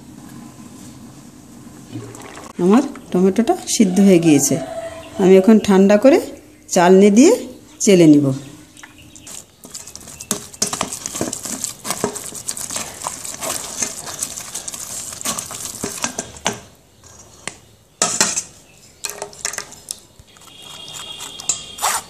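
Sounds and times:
spoon scraping through colander mesh: 9.2s - 16.3s, 20.4s - 22.0s.

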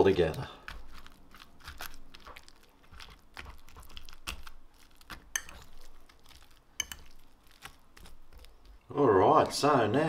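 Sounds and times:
fork clinking on ceramic bowl: 5.3s - 5.7s, 6.8s - 7.2s.

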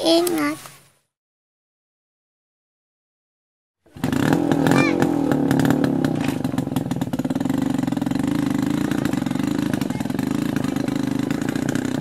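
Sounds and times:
motorcycle engine buzzing: 3.9s - 12.0s.

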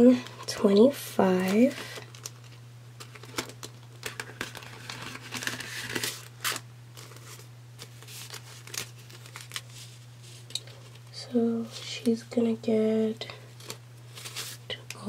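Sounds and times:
paper banknotes rustling: 3.0s - 10.5s, 13.6s - 14.6s.

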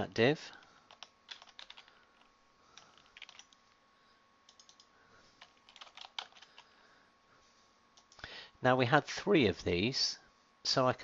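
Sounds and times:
typing on computer keyboard: 0.9s - 3.6s, 4.5s - 6.6s.

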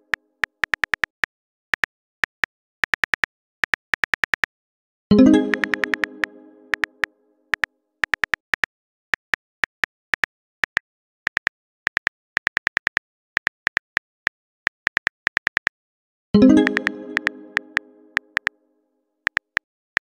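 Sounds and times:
phone keyboard tapping clicks: 0.4s - 4.5s, 5.4s - 13.9s, 16.6s - 18.5s, 19.3s - 20.0s
message arrival chime: 5.1s - 6.8s, 16.4s - 18.2s.

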